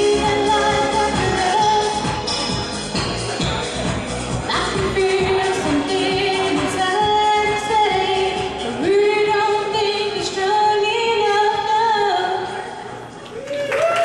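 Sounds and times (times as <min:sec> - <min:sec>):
woman singing into a microphone: 0:00.0 - 0:02.2, 0:04.5 - 0:12.8
backing music: 0:00.0 - 0:13.1.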